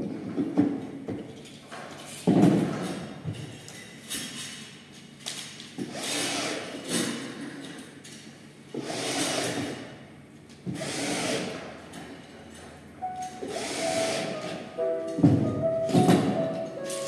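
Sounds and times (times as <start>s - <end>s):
music with held tones: 13.0s - 17.0s.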